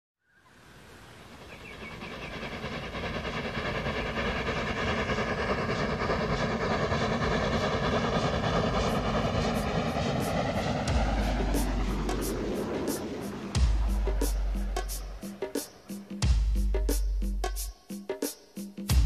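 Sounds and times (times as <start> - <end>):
steady rumbling: 1.9 - 15.6.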